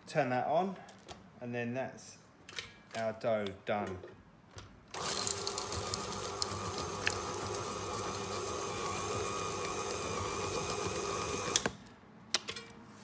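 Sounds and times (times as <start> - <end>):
electric stand mixer running: 5.0 - 11.7.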